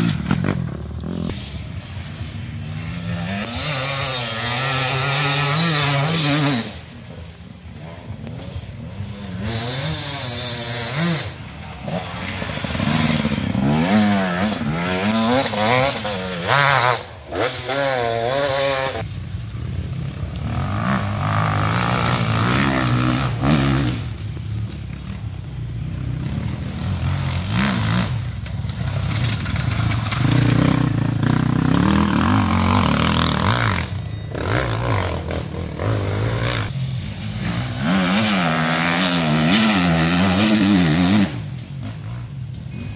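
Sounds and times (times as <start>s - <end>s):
motorcycles racing past: 0.0s - 42.9s.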